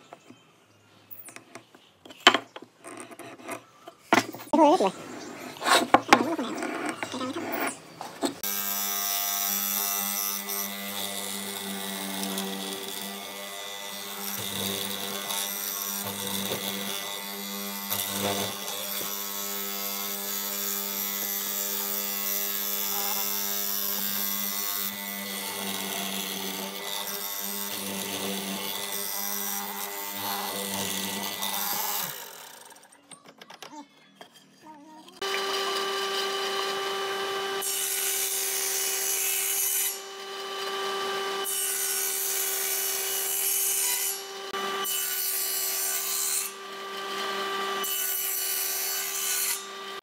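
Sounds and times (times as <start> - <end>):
chisel boring into wood: 8.4 - 34.4, 35.2 - 39.5.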